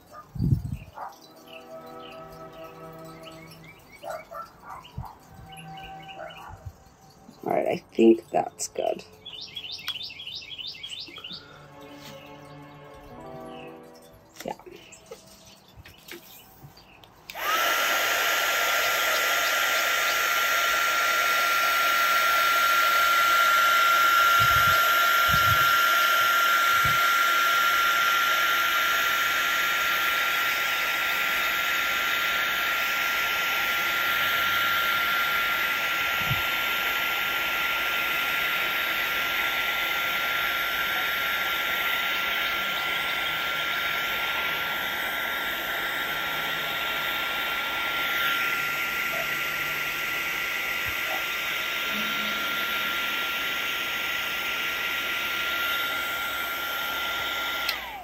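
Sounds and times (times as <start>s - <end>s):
heat gun running: 0.0s - 58.0s.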